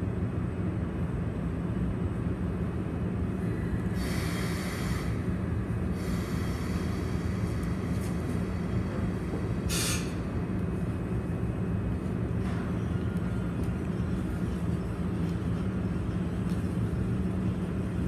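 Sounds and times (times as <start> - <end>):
electric locomotive humming: 0.0 - 18.0
air hiss: 4.0 - 5.2, 6.0 - 10.2.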